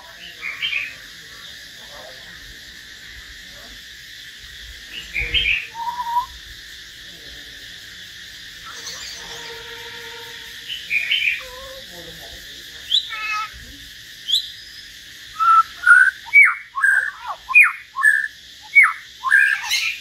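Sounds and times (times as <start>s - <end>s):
long steady bird whistle: 4.4s - 11.7s, 12.8s - 20.0s
birds calling with pitch glides: 4.9s - 6.4s, 8.6s - 12.0s, 12.6s - 20.0s.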